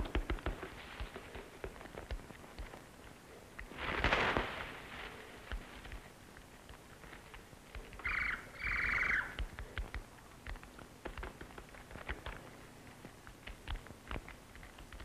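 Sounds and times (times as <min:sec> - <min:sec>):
buzzy bird calls: 0:08.0 - 0:09.4.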